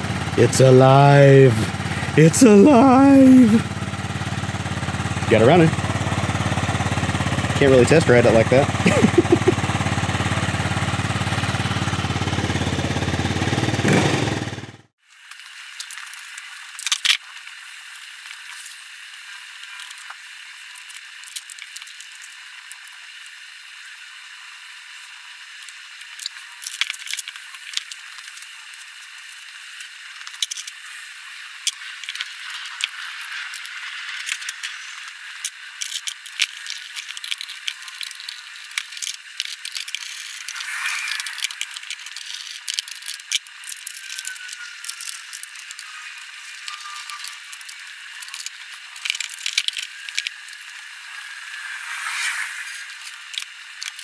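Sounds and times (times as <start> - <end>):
plastic clicks and rattles: 46.7 - 50.4
steady background hiss: 50.2 - 53.9.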